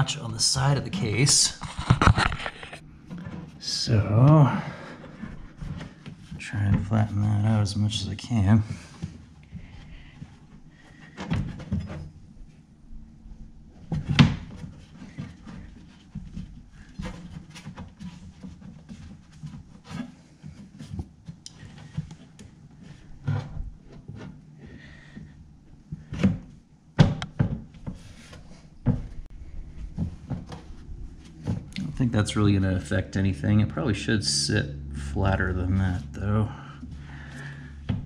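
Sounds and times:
hand rubbing rubber mat: 0:00.4 - 0:07.5.

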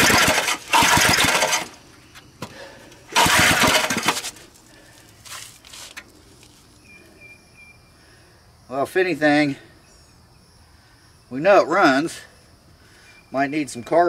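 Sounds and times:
engine firing and dying: 0:00.0 - 0:01.8, 0:03.1 - 0:04.4
small engine pull-started: 0:00.0 - 0:01.8, 0:03.1 - 0:04.5.

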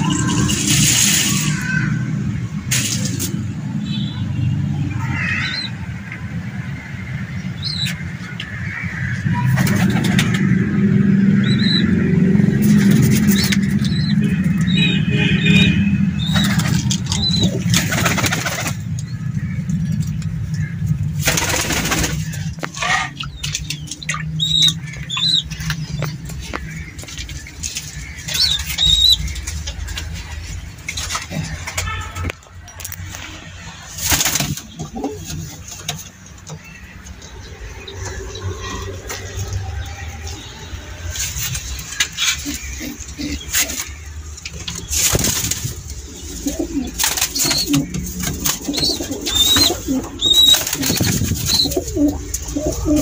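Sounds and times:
pigeon wings flapping: 0:16.4 - 0:18.9, 0:21.2 - 0:22.5, 0:44.9 - 0:52.3
high bird chirps: 0:23.1 - 0:29.5, 0:48.7 - 0:51.9.

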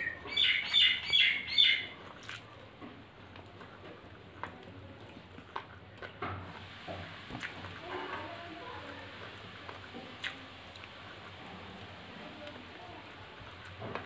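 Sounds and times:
bird chirping: 0:00.0 - 0:01.9
food mixed by hand on plate: 0:02.0 - 0:14.0.

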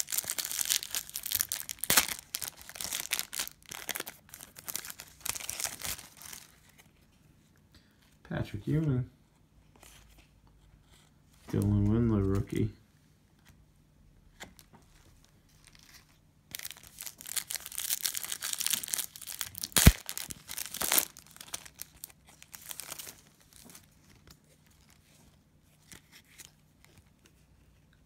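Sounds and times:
wrapper snapping: 0:00.0 - 0:06.5, 0:16.5 - 0:23.6
cellophane wrapper crinkling: 0:00.0 - 0:06.9, 0:14.5 - 0:25.0.

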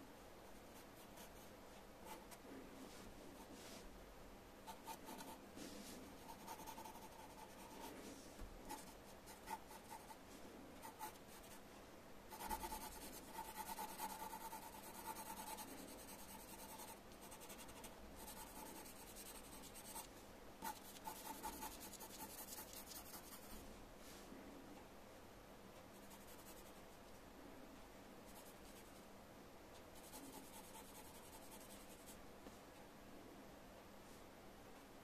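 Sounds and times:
pencil scratching on paper: 0:04.7 - 0:10.2, 0:10.8 - 0:11.6, 0:12.3 - 0:23.6, 0:30.0 - 0:32.1.

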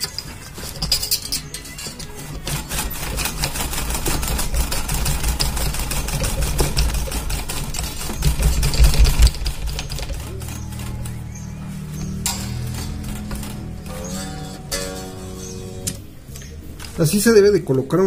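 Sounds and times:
guitar tuning machine clicking: 0:08.3 - 0:16.9
low handling rumble: 0:08.6 - 0:17.2.

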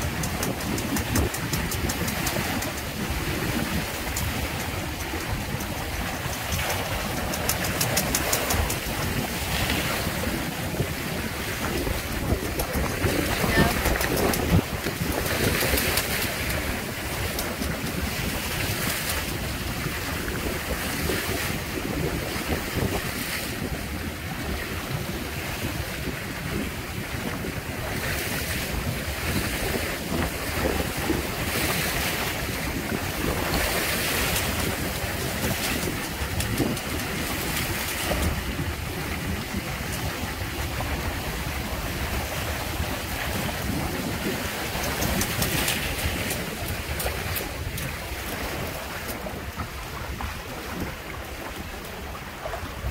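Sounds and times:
water splashing along hulls: 0:00.0 - 0:52.9
wind buffeting microphone: 0:00.0 - 0:52.9.

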